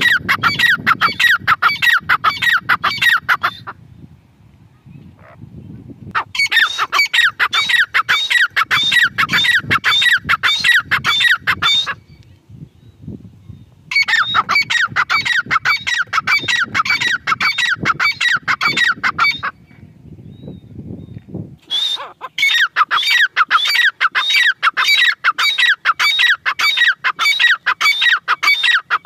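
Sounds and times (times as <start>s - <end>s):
bird calling shrill repeated notes: 6.2s - 12.2s, 13.9s - 19.6s, 21.6s - 29.0s.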